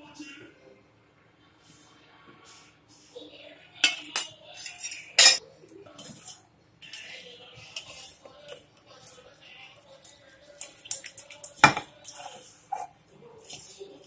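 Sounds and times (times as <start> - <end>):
metal spoon scraping a steel pot: 3.8 - 14.0.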